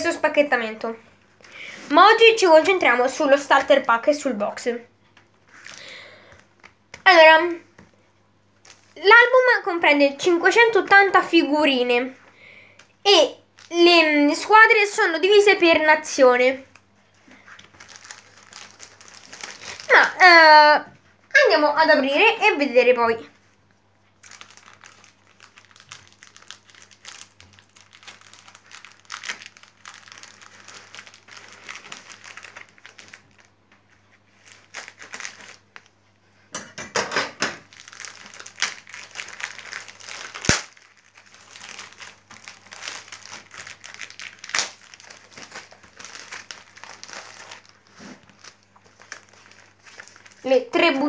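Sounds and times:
plastic wrapping crinkling and tearing: 0:05.2 - 0:07.1, 0:08.6 - 0:12.0, 0:12.8 - 0:20.6, 0:24.0 - 0:36.0, 0:37.5 - 0:51.0.

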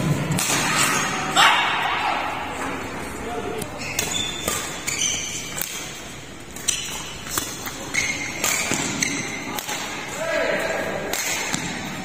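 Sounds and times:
racket hitting shuttlecock: 0:00.0 - 0:02.0, 0:03.6 - 0:10.1, 0:11.0 - 0:12.0
shoes squeaking on court: 0:03.5 - 0:09.6.

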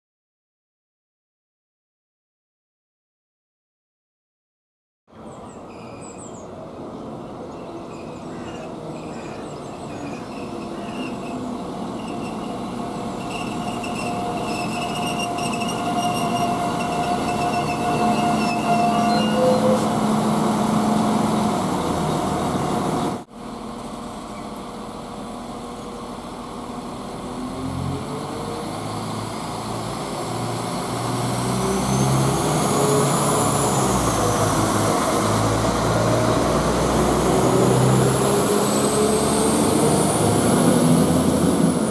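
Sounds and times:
diesel train passing: 0:05.1 - 0:41.9
high-pitched brake squeal: 0:05.5 - 0:06.5, 0:07.7 - 0:20.1
diesel engines revving: 0:06.6 - 0:41.9.

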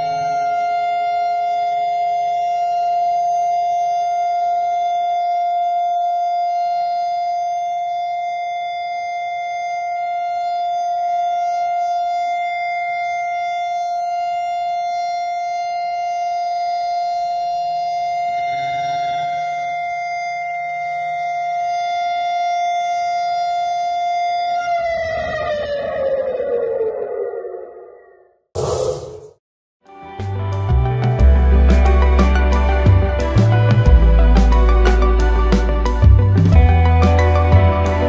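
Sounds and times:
siren steady tone: 0:00.0 - 0:29.4.

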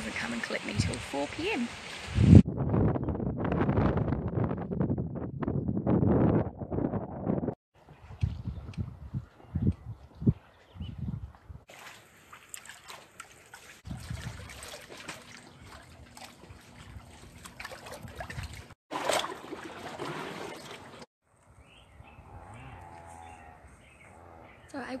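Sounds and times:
water sloshing against wooden piles: 0:11.7 - 0:21.1.

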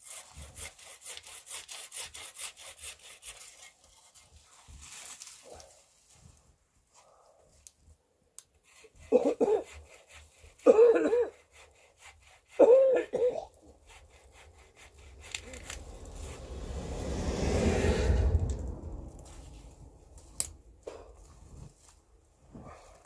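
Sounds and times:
handsaw cutting sapling: 0:00.0 - 0:04.2, 0:08.6 - 0:16.7
branches swishing through snow: 0:04.4 - 0:06.5, 0:14.8 - 0:22.1.

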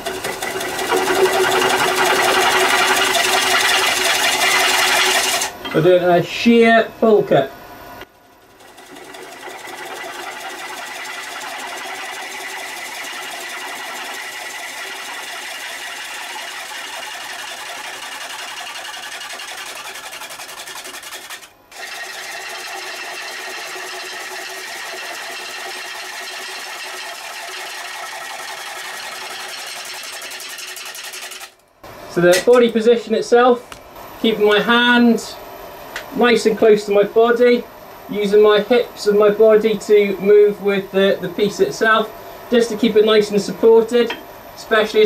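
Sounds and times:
gouge chattering on spinning wood: 0:00.0 - 0:05.5, 0:08.5 - 0:31.5.

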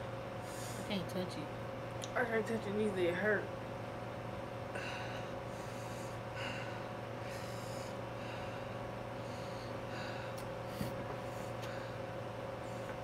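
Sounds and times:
steady hum: 0:00.0 - 0:13.0
person breathing hard and sniffing: 0:00.4 - 0:00.9, 0:04.7 - 0:13.0.

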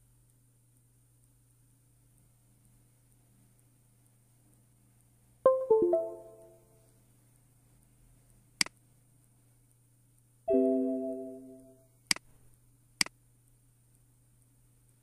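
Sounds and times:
falling electronic notes: 0:05.5 - 0:06.6
held electronic chord: 0:10.5 - 0:11.8.

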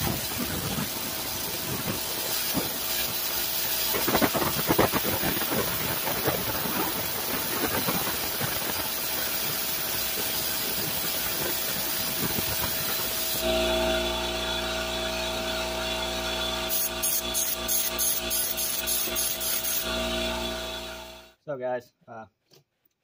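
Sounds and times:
compressed air hissing: 0:00.0 - 0:13.4, 0:16.7 - 0:19.9
steady hum: 0:00.0 - 0:21.4.

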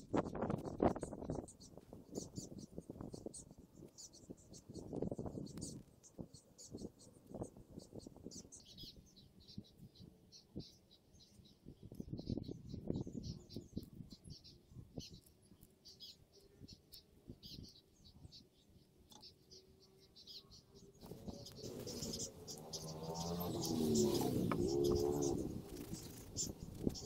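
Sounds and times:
small birds chirping: 0:00.0 - 0:27.0
loud wavering pitch sound: 0:21.2 - 0:25.7.

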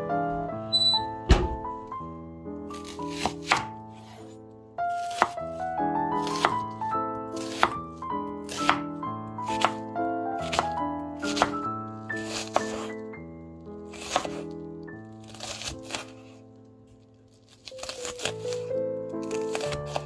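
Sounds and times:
background music: 0:00.0 - 0:20.0
knife slicing onion on board: 0:02.7 - 0:04.3, 0:04.9 - 0:05.4, 0:06.2 - 0:06.6, 0:07.4 - 0:07.8, 0:08.4 - 0:09.8, 0:10.4 - 0:11.6, 0:12.2 - 0:13.0, 0:13.9 - 0:14.6, 0:15.2 - 0:16.4, 0:17.6 - 0:20.0.

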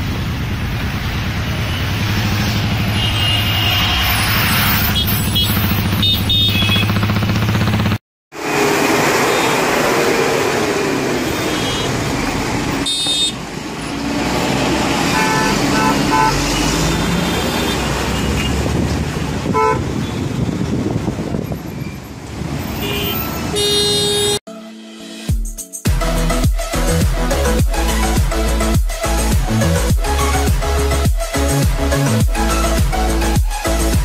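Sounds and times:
highway traffic noise: 0:00.0 - 0:24.4
vehicle horns honking: 0:02.9 - 0:07.0, 0:11.2 - 0:12.1, 0:12.8 - 0:13.5, 0:14.5 - 0:18.7, 0:19.4 - 0:20.5, 0:22.7 - 0:25.0.

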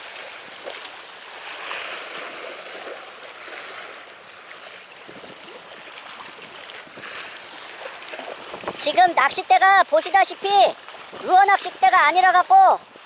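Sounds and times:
waves washing against rocks: 0:00.0 - 0:13.0.

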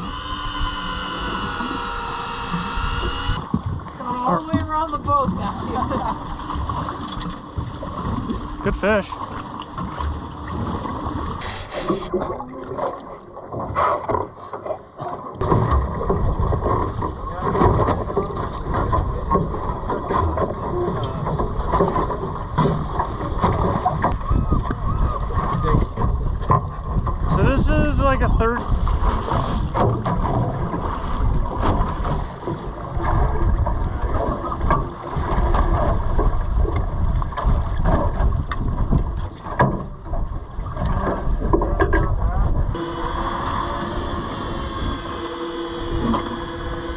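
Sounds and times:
water washing against hull: 0:00.0 - 0:46.9
wind buffeting microphone: 0:22.8 - 0:39.4.

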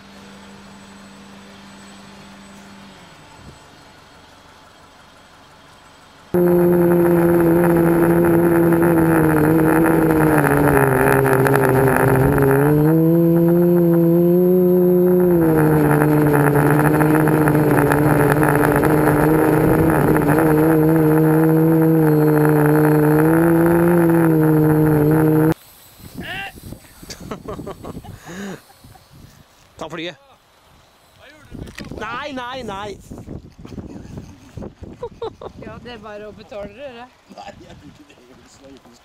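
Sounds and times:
quadcopter motors humming: 0:06.4 - 0:25.6.

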